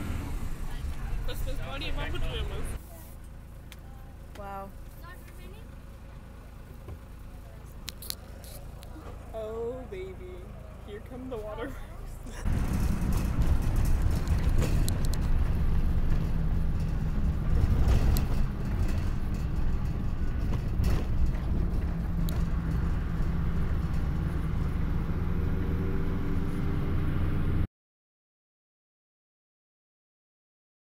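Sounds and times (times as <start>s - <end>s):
vehicle engine and road rumble: 0.0s - 27.7s
rattles and knocks: 12.4s - 25.4s.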